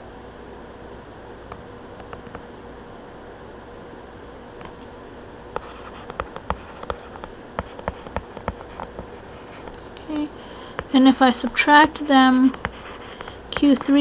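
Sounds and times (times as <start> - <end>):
faint electrical hum: 0.0 - 14.0
stylus tapping on tablet: 5.6 - 10.9, 12.5 - 14.0.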